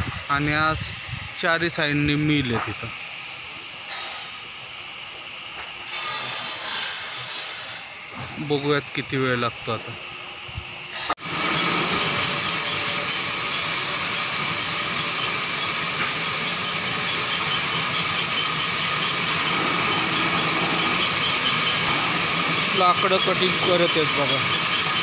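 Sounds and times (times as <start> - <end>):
sawmill saw cutting timber: 5.8 - 7.9, 11.0 - 25.0.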